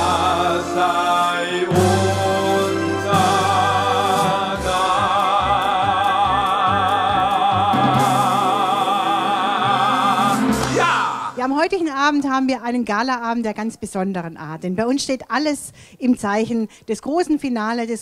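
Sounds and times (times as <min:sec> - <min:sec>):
bass line: 0:00.0 - 0:11.4
person singing with vibrato: 0:00.0 - 0:11.5.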